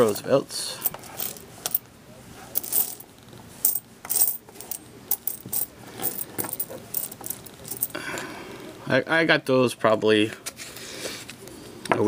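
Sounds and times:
coins clinking: 0.8 - 1.8, 2.6 - 3.0, 3.6 - 8.0.

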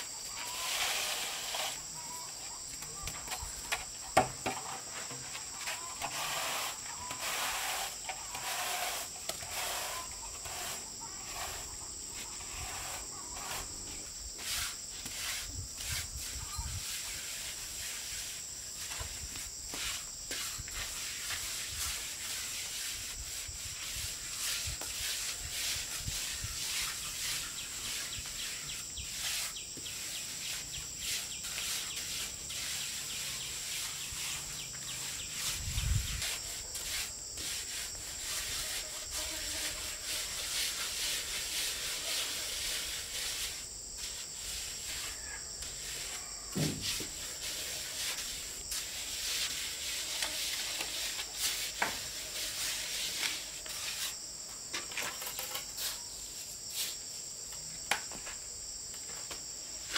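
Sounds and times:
hand tool scraping brick: 0.0 - 2.3, 3.1 - 54.3
insects droning: 0.0 - 59.9
dull thump: 46.5 - 47.1.

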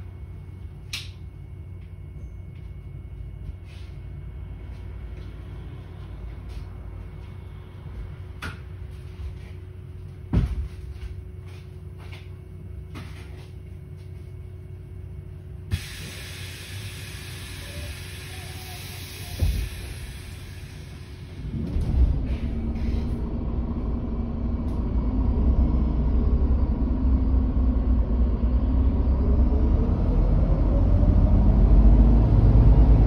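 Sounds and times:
steady hum: 0.0 - 29.8
bus engine rumble: 0.0 - 33.0.

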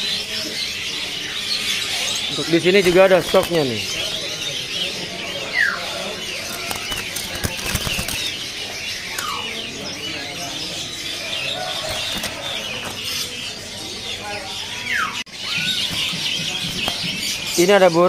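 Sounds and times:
birds twittering: 0.0 - 18.0
bird wings fluttering: 2.8 - 3.7, 6.4 - 8.4, 11.8 - 12.6.

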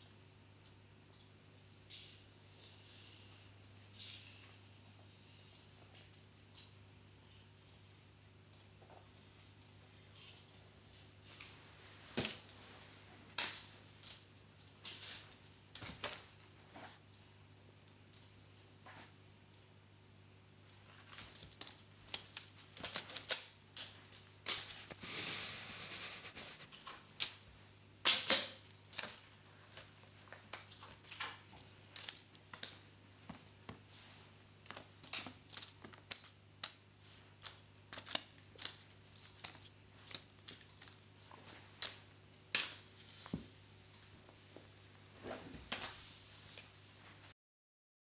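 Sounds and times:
crinkly paper rustling: 20.8 - 27.4, 28.6 - 42.1
cat claws scratching: 34.7 - 41.1.

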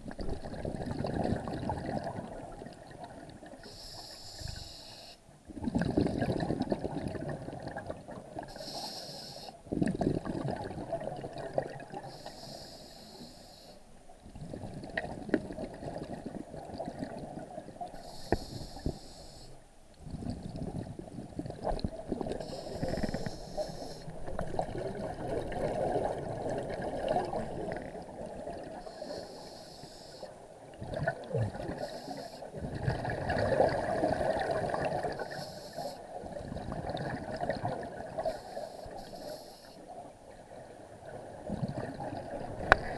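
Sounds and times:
regulator inhale hiss: 3.6 - 5.3, 8.5 - 9.6, 12.0 - 13.9, 18.0 - 19.7, 22.4 - 24.4, 28.8 - 30.4, 31.7 - 32.6, 35.2 - 36.1, 38.2 - 39.9.

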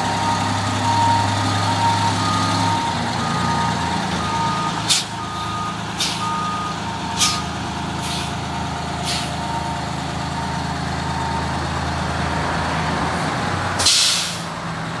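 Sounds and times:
diesel engine running: 0.0 - 15.0
backup alarm beeping: 0.1 - 7.5
air brake hiss: 4.9 - 5.1, 6.0 - 6.2, 7.2 - 8.4, 9.0 - 9.4, 13.8 - 14.5.

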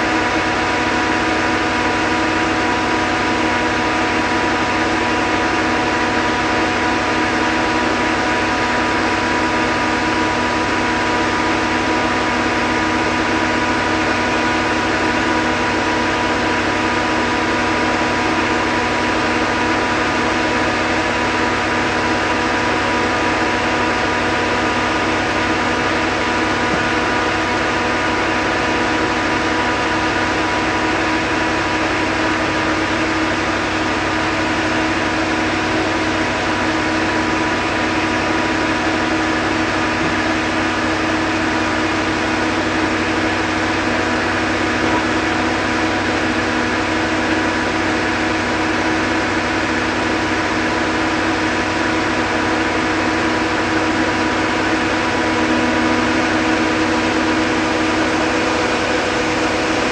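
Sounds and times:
combine harvester drone: 0.0 - 59.9.

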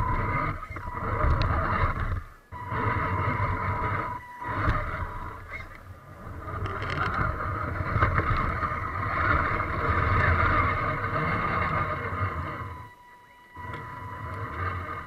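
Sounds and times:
chassis rumbling and rattling: 0.0 - 15.0
toy truck motor whining: 0.0 - 15.0.

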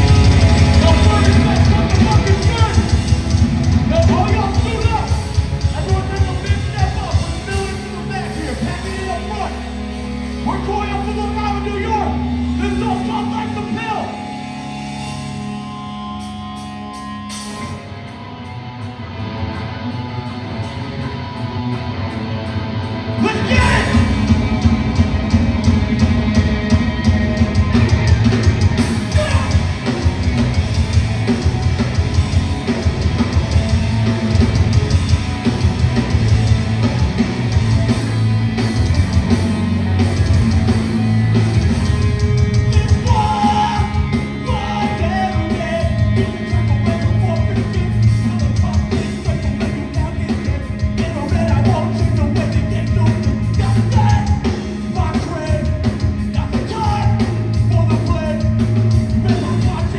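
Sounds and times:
distorted guitars: 0.0 - 59.9
driving drums: 0.0 - 59.9
heavy bass: 0.0 - 59.9
shouted vocals: 23.2 - 24.2.

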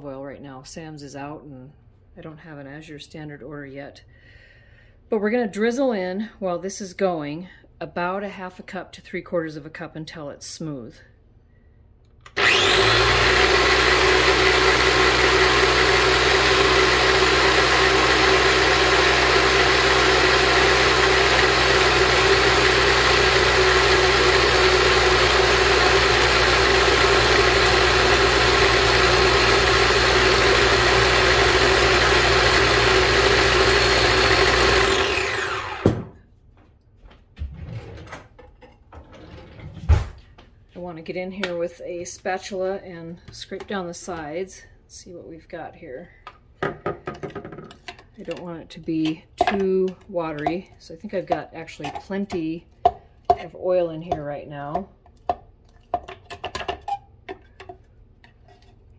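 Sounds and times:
food processor motor running: 12.3 - 36.2.

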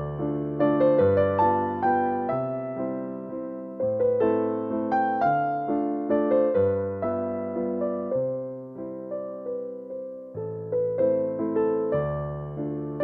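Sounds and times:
slow piano melody: 0.0 - 13.0.

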